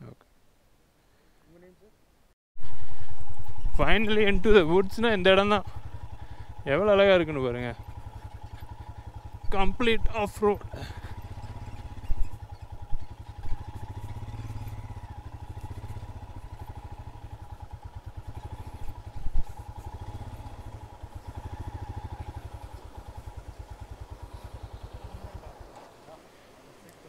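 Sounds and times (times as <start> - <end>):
motorcycle engine thumping: 7.4 - 26.0.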